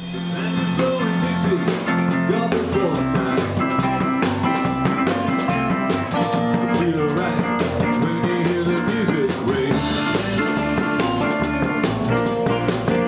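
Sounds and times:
rock band playing: 0:00.0 - 0:13.0.

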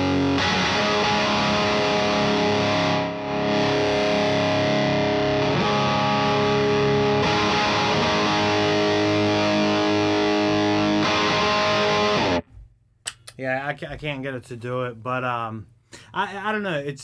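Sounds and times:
overdriven electric guitar chords: 0:00.0 - 0:12.5.

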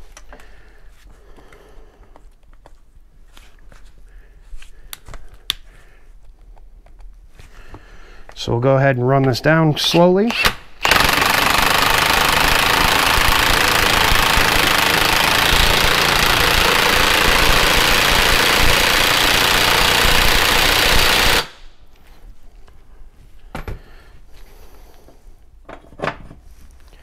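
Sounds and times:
impact wrench hammering: 0:10.3 - 0:21.7.

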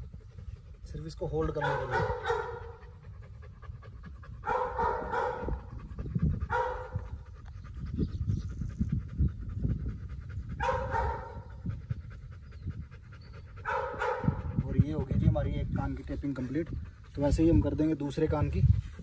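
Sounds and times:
dog panting: 0:00.0 - 0:19.0.

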